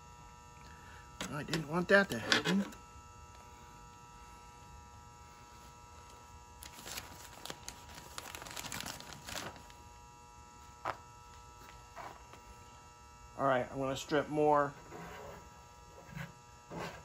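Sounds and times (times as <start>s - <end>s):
steady electrical hum: 0.0s - 17.0s
newspaper rustling and crinkling: 6.6s - 9.8s.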